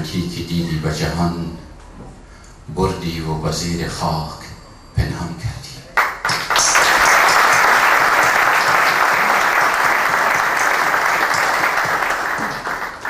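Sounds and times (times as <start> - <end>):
audience applause: 6.0 - 13.0.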